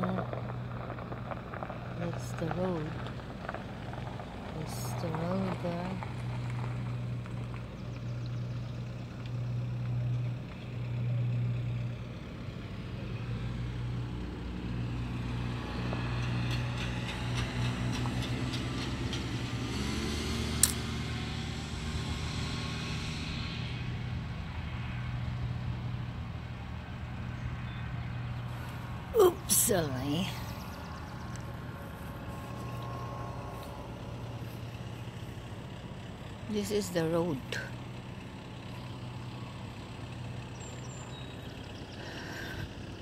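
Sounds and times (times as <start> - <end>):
sharp click: 20.6 - 20.8
boat hoist engine humming: 25.7 - 43.0.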